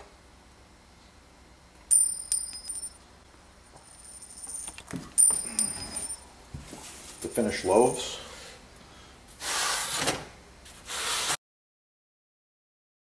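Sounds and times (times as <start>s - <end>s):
bell-like metallic chime: 5.2s - 6.3s.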